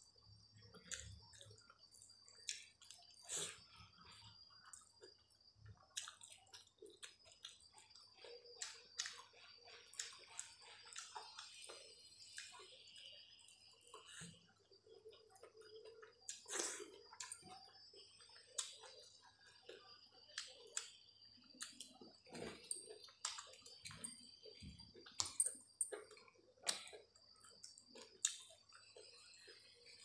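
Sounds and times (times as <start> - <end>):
chewing and lip smacks: 5.8 - 13.0, 19.7 - 24.1, 24.9 - 29.7.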